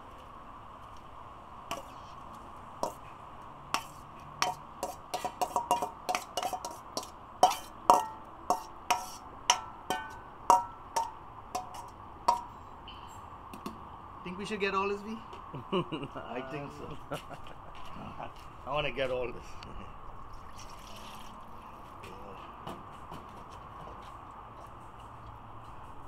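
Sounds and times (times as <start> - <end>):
metal spoon clinking in steel bowl: 5.2 - 12.5.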